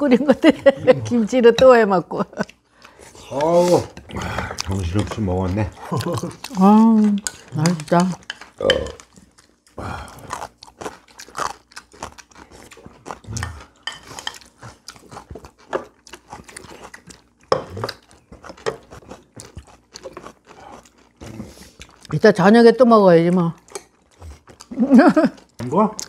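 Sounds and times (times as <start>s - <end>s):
chewing and crunching food: 2.4s - 26.0s
chopsticks clicking against bowls: 4.6s - 9.1s.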